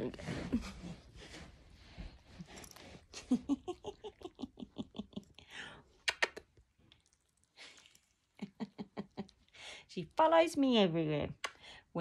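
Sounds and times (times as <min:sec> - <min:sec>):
woman giggling softly: 0:00.2 - 0:01.1.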